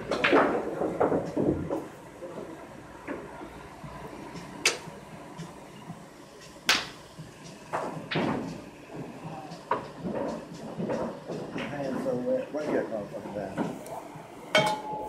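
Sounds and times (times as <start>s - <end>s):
pool balls clacking: 0.0s - 2.0s, 7.7s - 12.0s.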